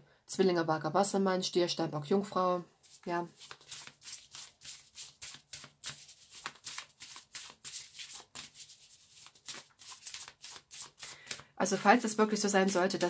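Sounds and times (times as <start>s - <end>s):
cards being shuffled: 2.8s - 13.0s.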